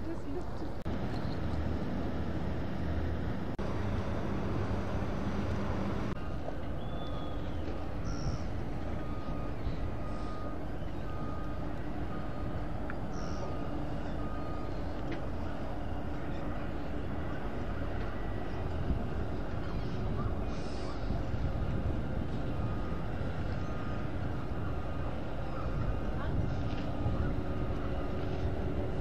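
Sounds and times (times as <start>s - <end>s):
distant machinery: 0.0s - 29.0s
wind on microphone: 18.6s - 29.0s.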